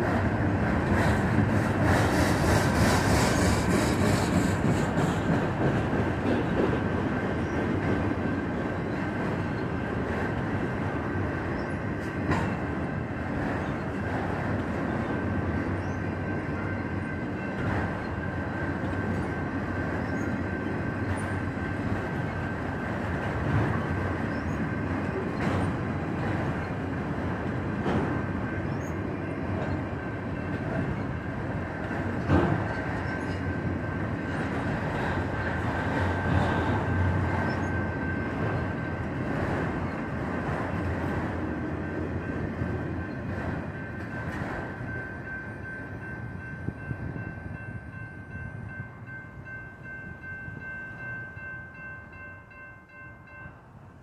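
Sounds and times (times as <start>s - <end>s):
train wheel clacks: 0.0s - 10.8s, 11.6s - 12.7s, 17.2s - 31.1s, 31.7s - 45.9s
train cars rumbling past: 0.0s - 54.0s
crossing warning bell: 4.6s - 54.0s.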